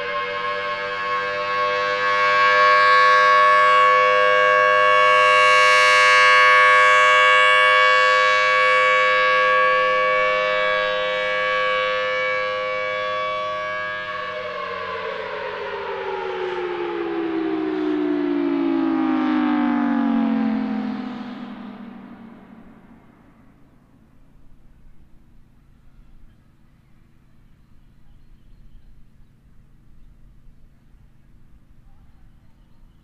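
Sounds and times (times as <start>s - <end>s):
warning siren wailing: 0.0s - 25.6s.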